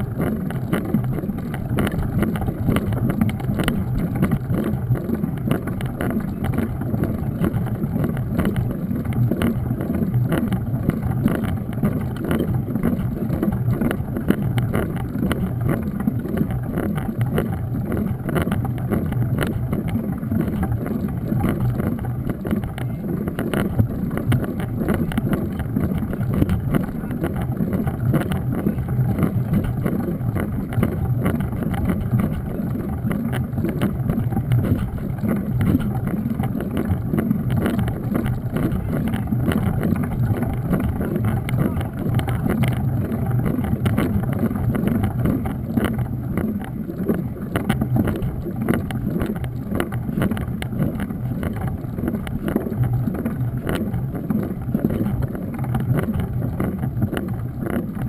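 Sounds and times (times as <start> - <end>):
bike tyres rumbling on asphalt: 0.0 - 58.0
small knocks and rattles: 0.0 - 58.0
wind on microphone: 0.0 - 58.0.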